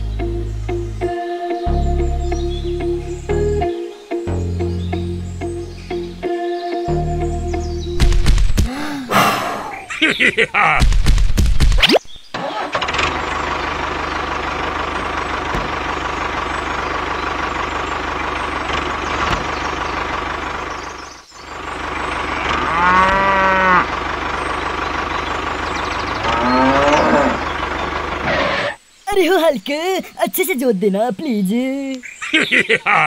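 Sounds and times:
tractor engine running: 12.3s - 28.7s
cow mooing: 22.2s - 24.0s, 26.2s - 27.5s.

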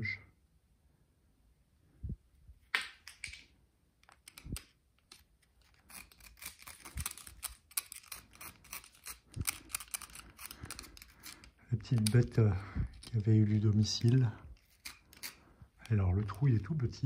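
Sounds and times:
screwdriver scraping clicks: 4.0s - 12.2s, 14.0s - 15.4s.

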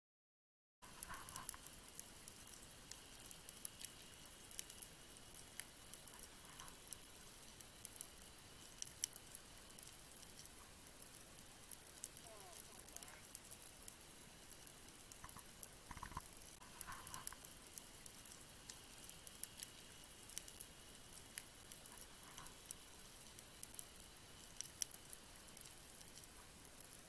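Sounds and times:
faint high hum: 0.8s - 27.0s
underwater clicks crackling: 14.5s - 27.0s.

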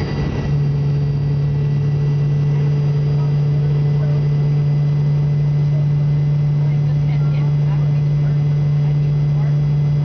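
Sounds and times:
airliner cabin engine hum: 0.0s - 10.0s.

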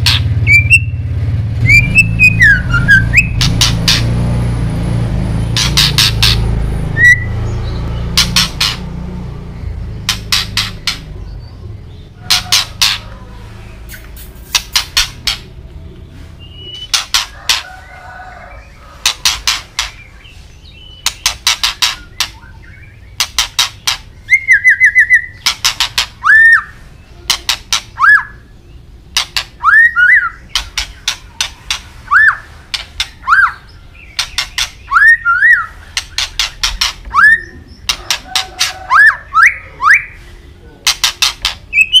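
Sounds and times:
bird whistled notes: 0.1s - 1.0s, 1.6s - 3.5s, 7.0s - 7.4s, 16.4s - 17.0s, 26.2s - 26.8s, 28.0s - 28.5s, 29.6s - 30.6s, 32.0s - 32.5s, 34.4s - 35.8s, 37.1s - 37.7s
bird clicking notes: 10.0s - 11.1s.

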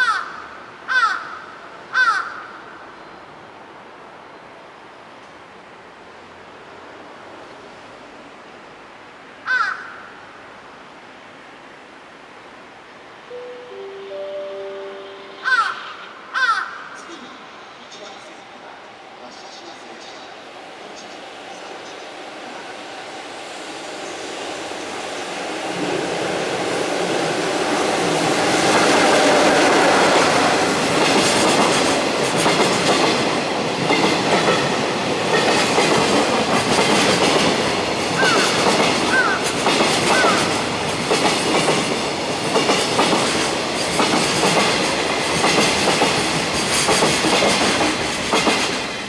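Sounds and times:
train wheels rumbling: 17.0s - 49.0s
clickety-clack over rail joints: 28.4s - 49.0s.

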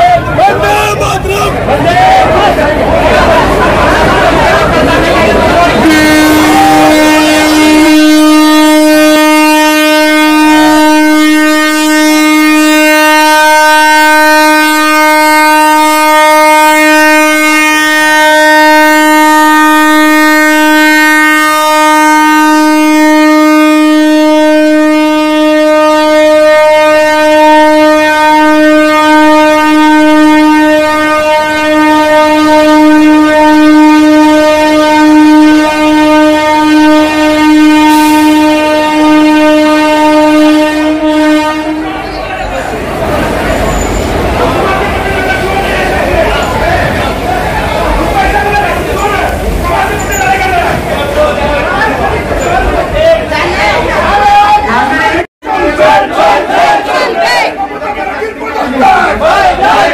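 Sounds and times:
locomotive air horn blast: 5.7s - 45.6s, 46.8s - 51.4s.

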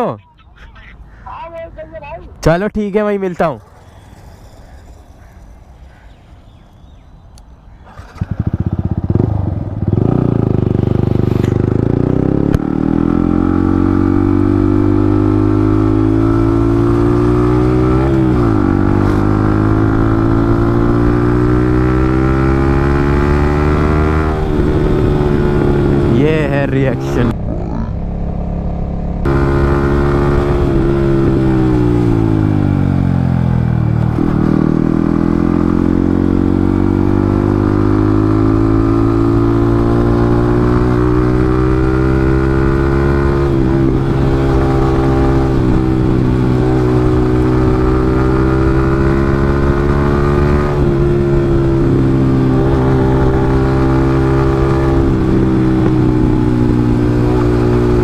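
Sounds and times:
motorcycle engine running: 7.8s - 58.0s.

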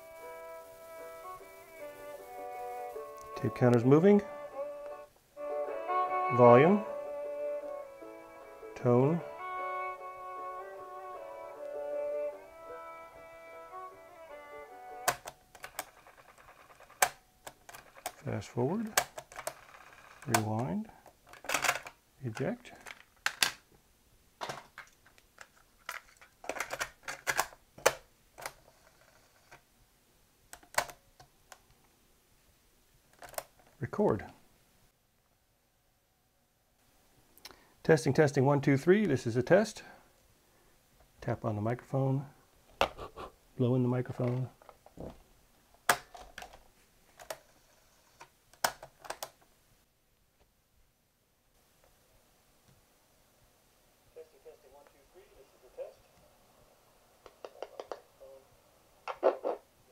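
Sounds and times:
cassette recorder plastic clicks: 15.0s - 18.2s, 48.5s - 49.4s.

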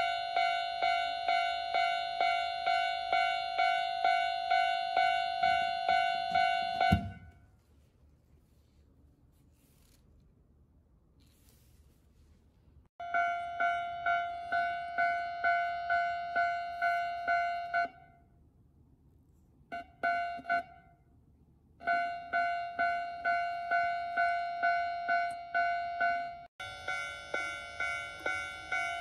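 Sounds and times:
level crossing alarm: 0.0s - 7.3s, 13.0s - 18.3s, 19.7s - 21.0s, 21.8s - 29.0s.

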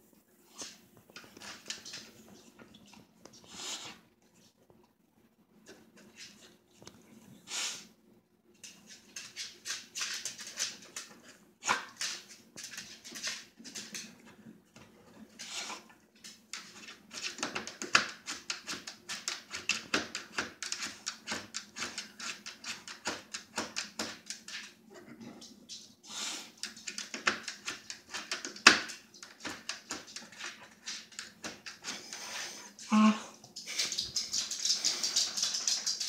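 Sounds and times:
dog sniffing: 3.4s - 4.0s, 26.0s - 26.8s.

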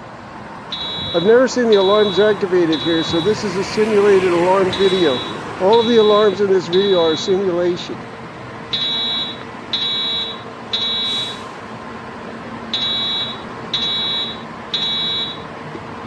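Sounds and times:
steady background hum: 0.0s - 16.0s
high-pitched alarm beeps: 0.7s - 7.5s, 8.7s - 11.4s, 12.7s - 15.5s.

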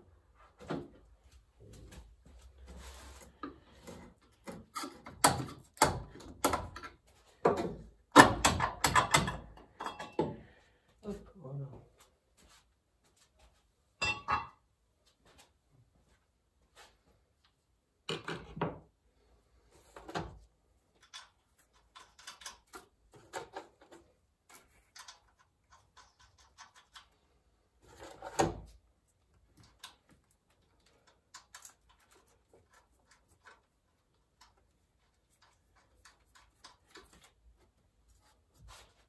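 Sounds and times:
metal tools clicking and clunking: 4.4s - 10.5s.

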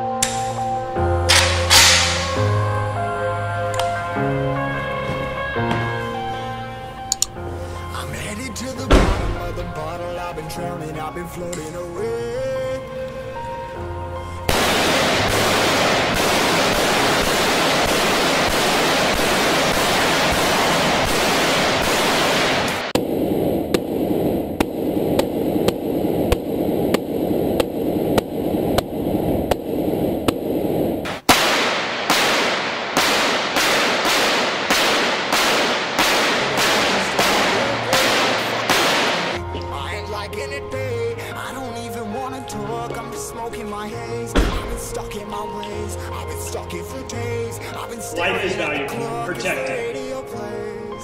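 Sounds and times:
rifle shots: 1.3s - 2.4s, 14.5s - 23.0s, 31.1s - 39.4s.

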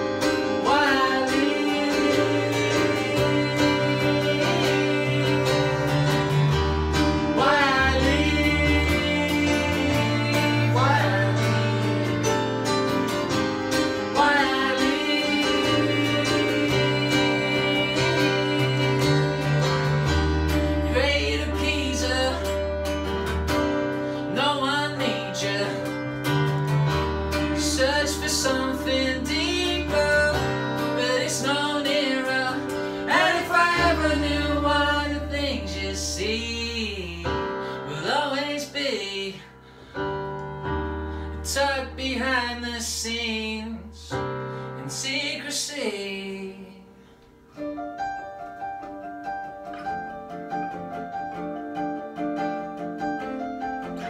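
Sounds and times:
acoustic guitar strumming: 0.0s - 37.8s
keyboard bass notes: 0.0s - 39.0s, 39.6s - 44.4s
man singing: 0.3s - 6.6s, 7.3s - 13.1s, 13.8s - 22.8s, 24.2s - 26.3s, 27.4s - 39.6s, 41.4s - 46.9s.

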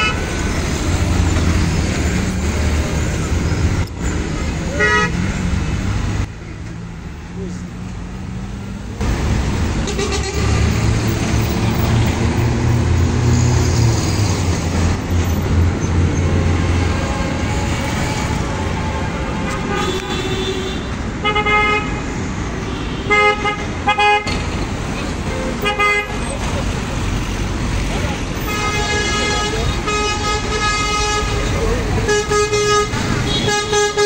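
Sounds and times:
car horns tooting: 0.0s - 0.6s, 4.7s - 5.3s, 9.8s - 10.7s, 16.7s - 24.5s, 25.2s - 26.4s, 28.3s - 34.0s
vehicle engine passing: 8.2s - 18.6s.

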